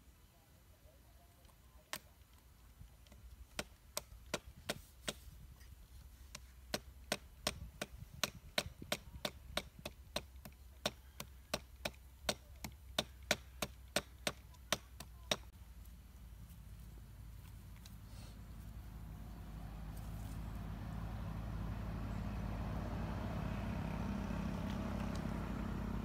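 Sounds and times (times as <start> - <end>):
knife chopping wood: 3.1 - 5.2, 6.3 - 15.5.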